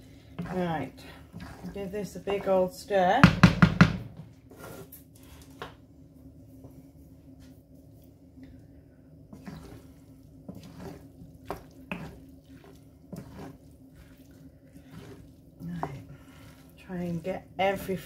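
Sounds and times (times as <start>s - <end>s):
wooden spatula scraping pan: 0.0s - 3.0s, 4.5s - 5.5s, 9.3s - 18.0s.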